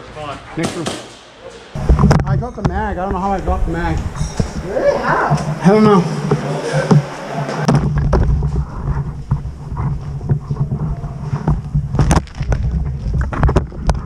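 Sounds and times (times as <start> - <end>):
camera handling rumble: 7.8 - 14.0.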